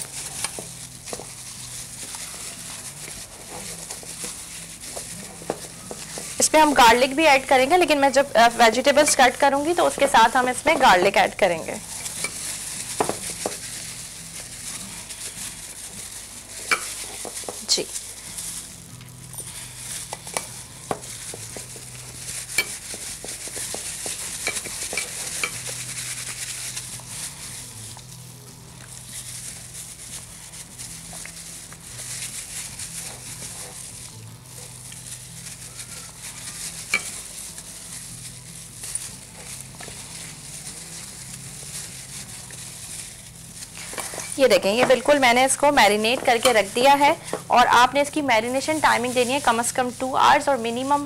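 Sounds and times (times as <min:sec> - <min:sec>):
soft wet rubbing: 0:00.0 - 0:06.5, 0:19.4 - 0:45.8
hands squishing wet marinade: 0:00.0 - 0:06.7.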